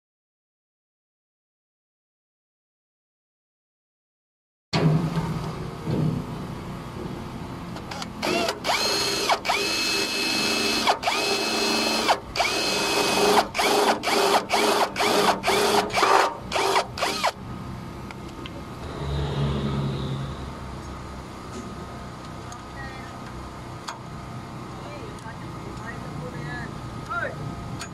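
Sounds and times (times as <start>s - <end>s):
cordless drill drilling into metal: 7.9s - 17.4s.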